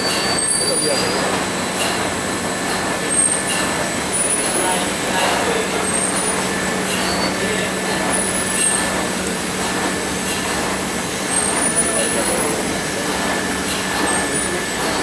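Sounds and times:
high-pitched machine squeals: 0.0 - 1.4, 5.7 - 7.6
machinery humming and rumbling: 0.0 - 15.0.

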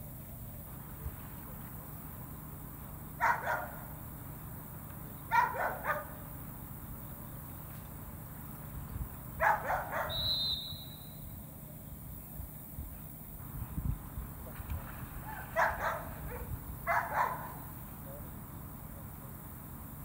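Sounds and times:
dog barking: 3.2 - 3.9, 5.3 - 6.2, 9.4 - 10.3, 15.2 - 17.6.

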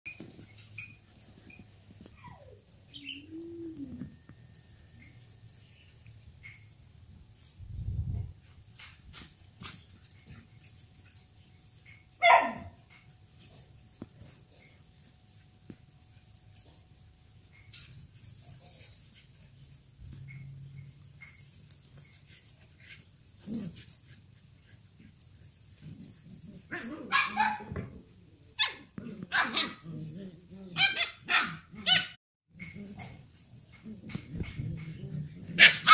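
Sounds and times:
puppy whining: 0.1 - 6.9, 17.5 - 35.9.

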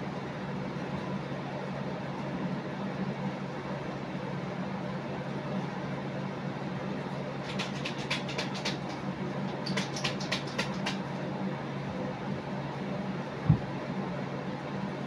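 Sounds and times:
steady low hum: 0.0 - 15.0
quick sharp clicks: 7.4 - 9.0, 9.6 - 11.0.

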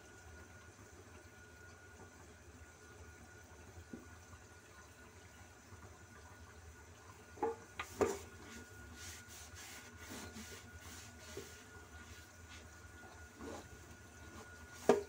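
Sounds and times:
faint steady hum: 0.0 - 15.0
knocks on plastic drain pipe: 7.4 - 8.2, 14.8 - 15.0.

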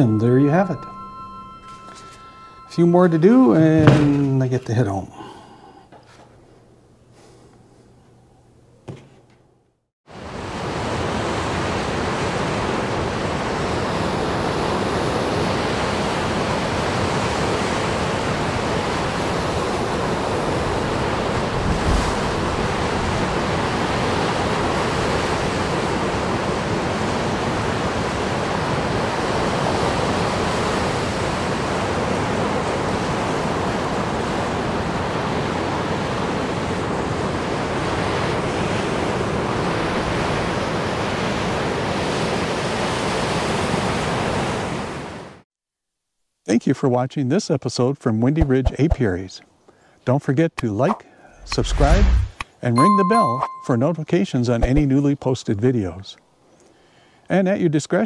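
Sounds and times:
low thump: 3.8 - 4.3.

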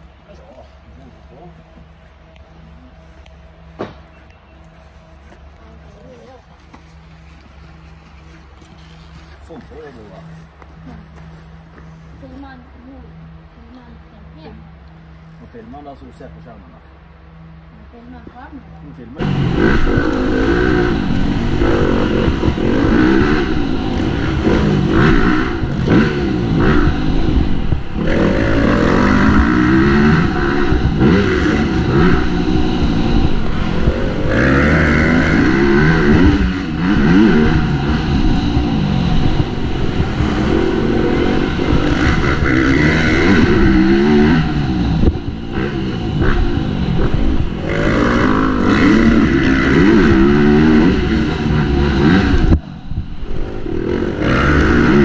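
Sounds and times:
motocross bike engine revving: 15.3 - 55.0.

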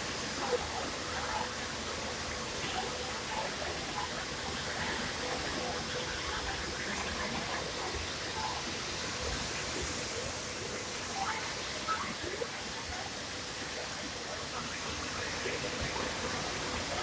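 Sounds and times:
industrial hiss and rush: 0.0 - 17.0.

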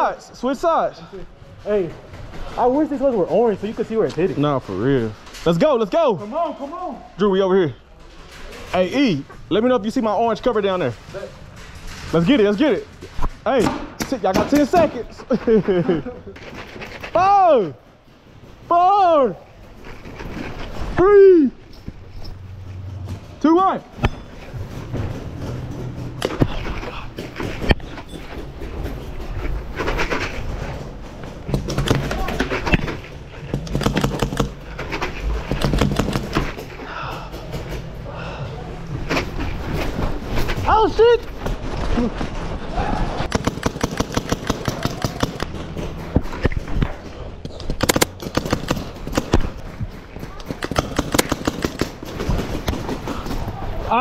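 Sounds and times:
rustle of players moving: 0.0 - 13.6, 14.2 - 43.3
paintball markers firing: 33.5 - 34.6, 35.5 - 36.5, 43.3 - 45.5, 47.5 - 49.7, 50.4 - 53.4.

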